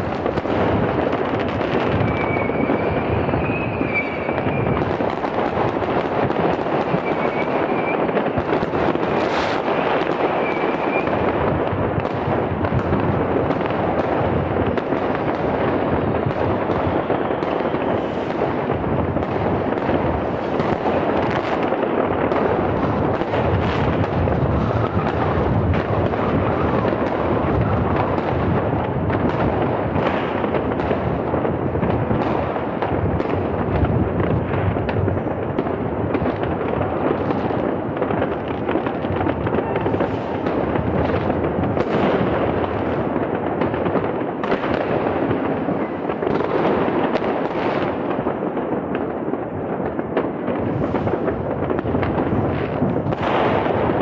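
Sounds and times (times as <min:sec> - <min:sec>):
nearby firework bangs: 0:00.0 - 0:31.1, 0:50.2 - 0:54.0
fireworks bangs and crackles: 0:00.0 - 0:54.0.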